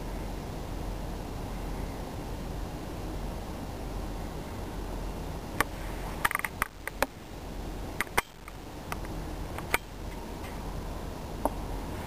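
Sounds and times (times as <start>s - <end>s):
steady low hum: 0.0s - 12.0s
sharp clicks and ticks: 5.6s - 7.1s, 8.0s - 9.9s.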